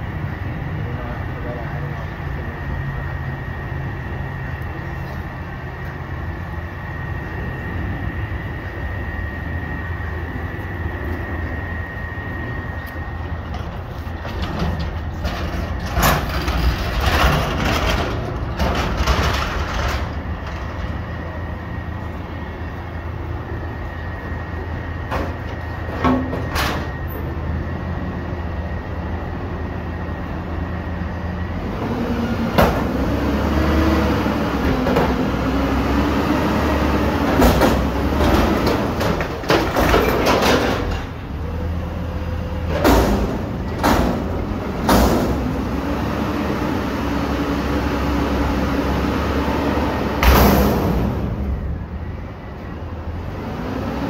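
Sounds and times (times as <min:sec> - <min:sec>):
garbage truck diesel engine: 0:00.0 - 0:54.0
sharp knocks and bangs: 0:42.7 - 0:45.6, 0:50.2 - 0:51.5.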